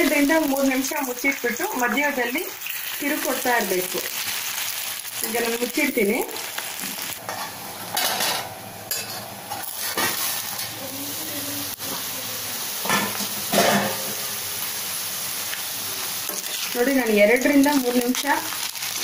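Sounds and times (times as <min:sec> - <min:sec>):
banana slices sizzling in oil: 0:00.0 - 0:19.0
steel plate clattering on pan: 0:12.9 - 0:14.1.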